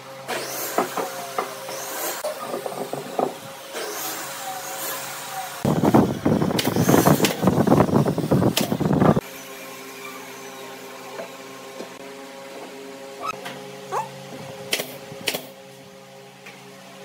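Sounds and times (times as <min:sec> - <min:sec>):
wooden boards knocking and scraping: 0:02.4 - 0:03.5.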